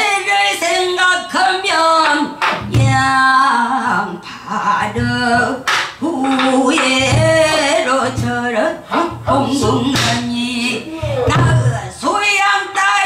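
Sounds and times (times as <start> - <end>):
woman singing: 0.0 - 13.0
low thumps: 4.8 - 10.4, 11.0 - 12.0.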